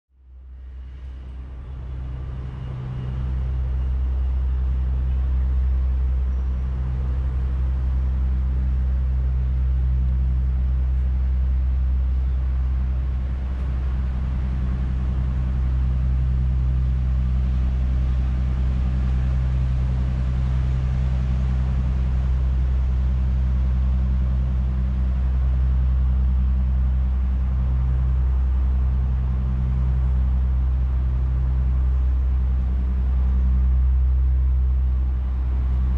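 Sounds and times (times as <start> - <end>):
low engine hum: 0.1 - 35.9.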